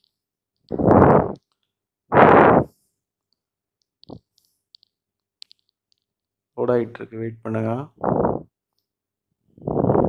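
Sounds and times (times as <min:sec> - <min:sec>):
breath puffs on microphone: 0:00.7 - 0:01.4, 0:02.1 - 0:02.9, 0:08.0 - 0:08.5, 0:09.6 - 0:10.0.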